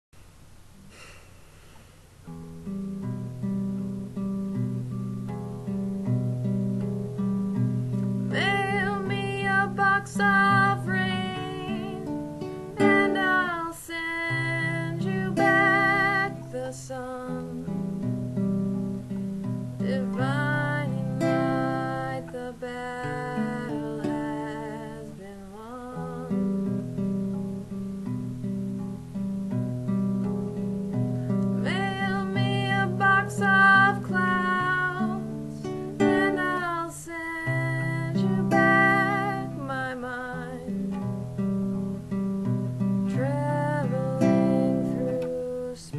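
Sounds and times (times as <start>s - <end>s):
classical guitar chords: 2.2s - 45.9s
woman singing: 8.3s - 18.0s, 19.8s - 26.9s, 31.4s - 40.9s, 43.0s - 45.9s.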